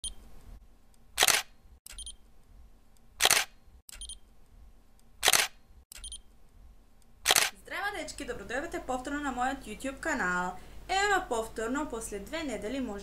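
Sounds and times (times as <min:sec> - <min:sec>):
camera shutter: 0:01.2 - 0:02.2, 0:03.2 - 0:04.2, 0:05.2 - 0:06.2, 0:07.2 - 0:07.6.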